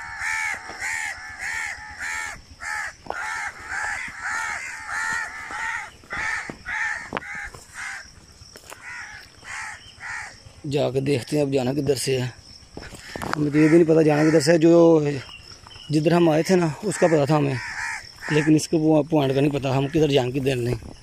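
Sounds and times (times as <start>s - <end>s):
crows cawing: 0.0s - 10.5s, 12.8s - 20.3s.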